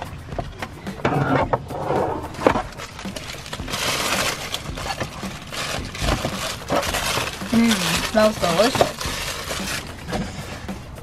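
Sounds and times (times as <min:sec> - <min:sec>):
paper wrapper crinkling: 0:02.7 - 0:09.9.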